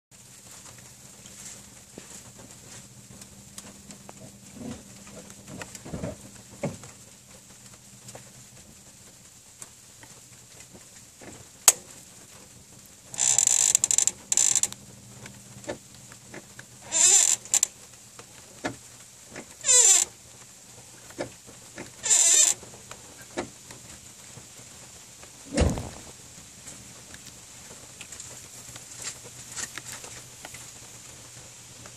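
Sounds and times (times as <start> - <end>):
clutch pedal squeaking: 13.2 - 14.8, 16.8 - 17.7, 19.6 - 20.1, 21.2 - 22.6
dull thump: 25.5 - 26.1.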